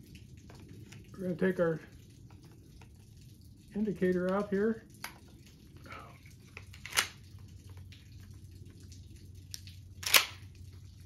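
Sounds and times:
shotgun mechanical clicks: 6.7s - 7.2s, 10.0s - 10.4s.

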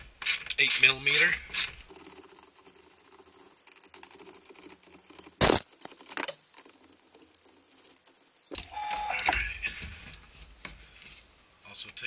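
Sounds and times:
ratchet clicking rapidly: 1.9s - 8.6s.

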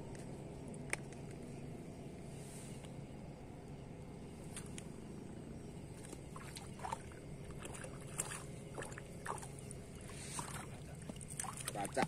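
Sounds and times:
steady low rumble: 0.0s - 12.0s
small splashes and ticks: 5.9s - 12.0s
water sloshing: 5.9s - 12.0s.

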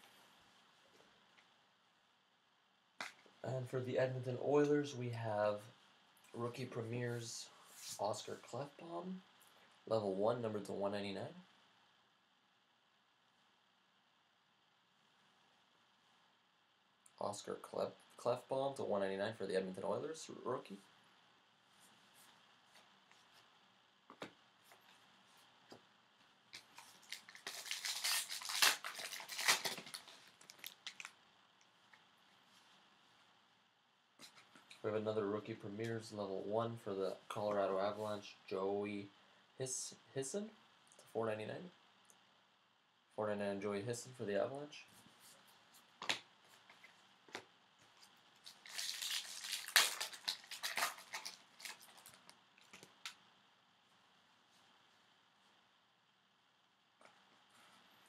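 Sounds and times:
wrapper tearing and crinkling: 26.8s - 31.1s, 48.4s - 53.2s.

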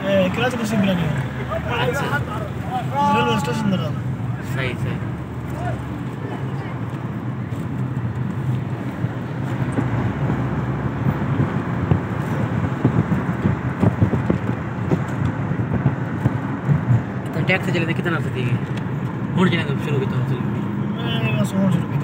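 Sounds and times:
car engine and road rumble: 0.0s - 22.0s
low thumps and crackle: 6.9s - 17.4s.

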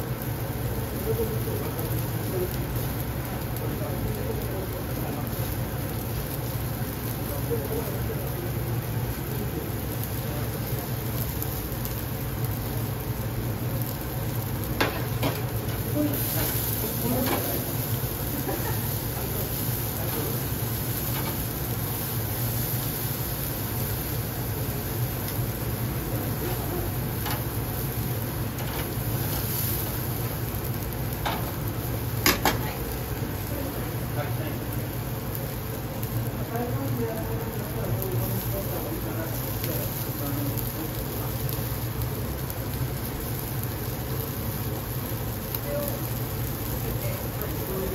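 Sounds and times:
grill rushing noise: 0.0s - 47.9s
metal tongs clinking on grill grate: 32.2s - 32.6s.

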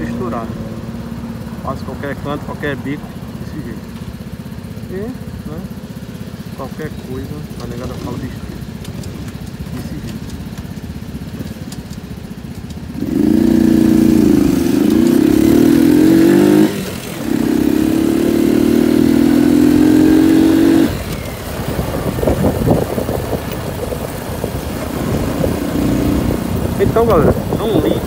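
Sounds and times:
road noise: 0.0s - 28.0s
small motorcycle engine revving: 4.8s - 28.0s.

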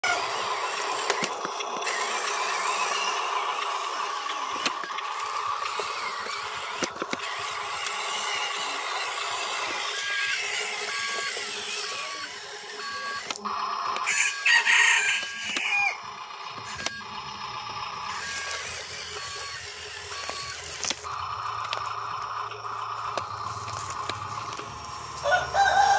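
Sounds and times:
toy truck electric motor whine: 0.0s - 25.9s
rooster crowing: 14.0s - 16.0s, 25.1s - 25.9s.

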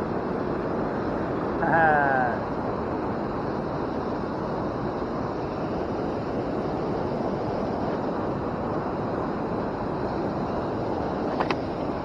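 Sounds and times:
waterfall rushing: 1.4s - 2.7s.

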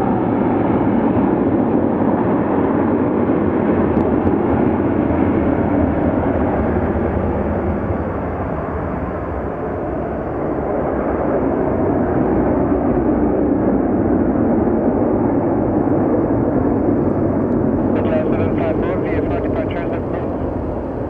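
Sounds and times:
jet engines at takeoff rumbling: 0.0s - 21.0s.

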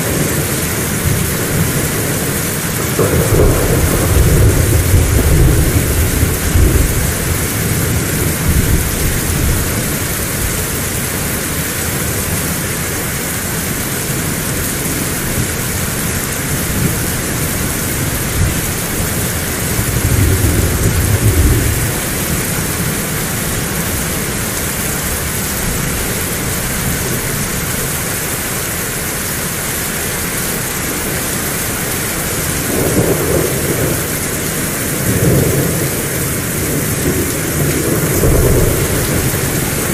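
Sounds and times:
low thunder rumbles: 0.0s - 10.8s, 15.4s - 28.0s, 32.5s - 39.9s
heavy rain falling: 0.0s - 39.9s.

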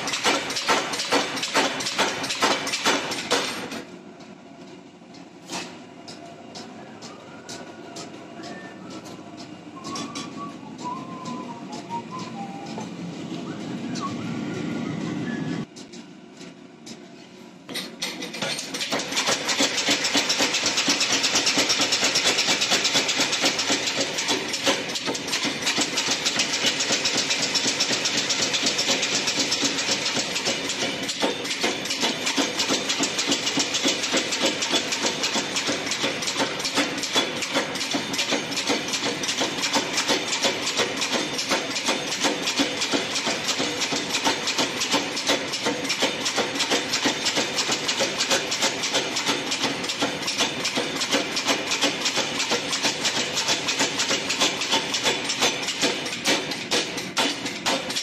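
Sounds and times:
power hammer pounding steel: 0.0s - 3.9s, 17.8s - 58.0s.

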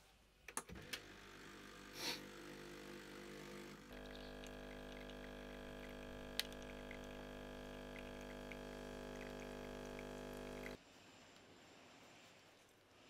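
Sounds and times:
espresso machine pump humming: 0.8s - 10.8s
espresso dripping into glass: 3.9s - 10.8s.

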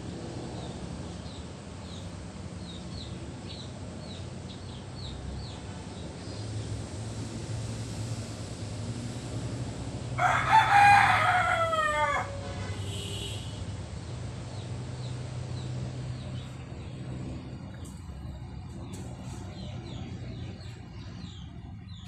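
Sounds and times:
rooster crowing: 10.2s - 12.8s.

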